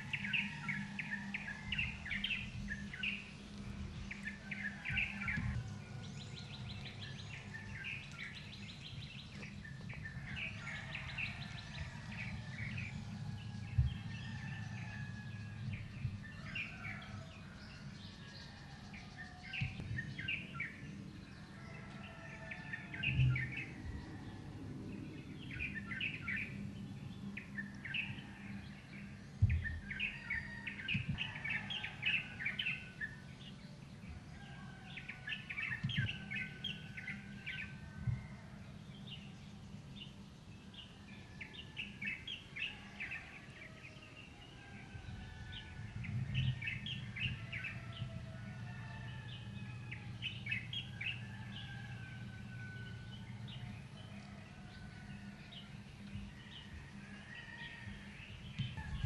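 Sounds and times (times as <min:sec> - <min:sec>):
small birds chirping: 0:00.0 - 0:59.0
low rumble: 0:44.9 - 0:54.1.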